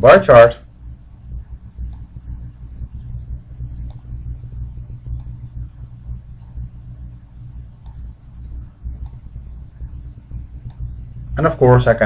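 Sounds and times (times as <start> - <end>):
steady low hum: 0.0 - 12.0
computer mouse clicks: 1.8 - 2.1, 3.8 - 4.1, 5.1 - 5.4, 7.8 - 8.1, 9.0 - 9.3, 10.6 - 10.8.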